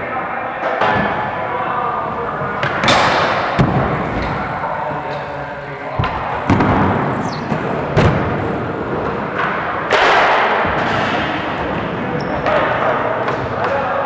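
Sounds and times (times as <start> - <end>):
bike tyres rolling on wood: 2.0 - 12.1
bike landing thuds: 2.5 - 9.2.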